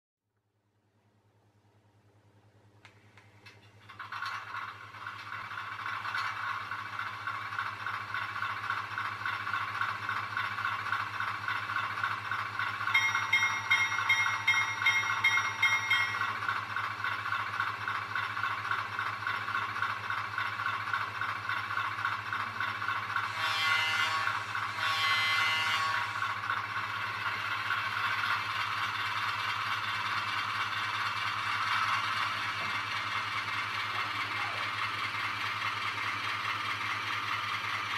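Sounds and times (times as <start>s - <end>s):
model diesel engine chugging: 4.0s - 23.6s, 26.1s - 37.9s
locomotive bell ringing: 12.6s - 17.0s
locomotive horn: 23.3s - 26.3s.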